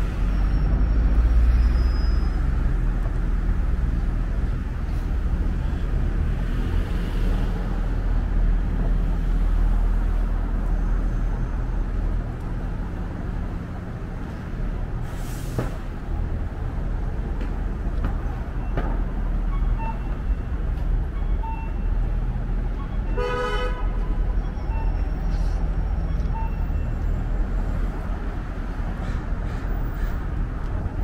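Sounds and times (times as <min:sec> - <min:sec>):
traffic rumble: 0:00.0 - 0:31.0
bus air brakes hissing: 0:15.0 - 0:15.9, 0:24.9 - 0:25.8.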